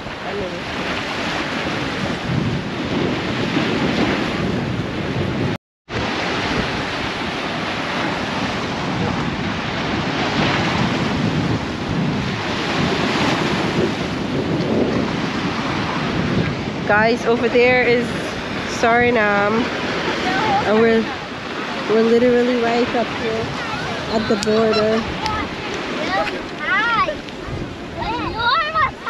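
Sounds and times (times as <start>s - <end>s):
river water washing against bank: 0.0s - 29.0s
wind buffeting microphone: 0.0s - 29.0s.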